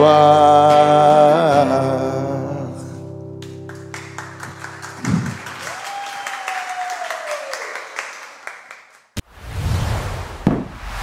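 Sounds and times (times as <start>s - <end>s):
hands clapping in applause: 3.4s - 9.2s
thud: 10.4s - 10.8s.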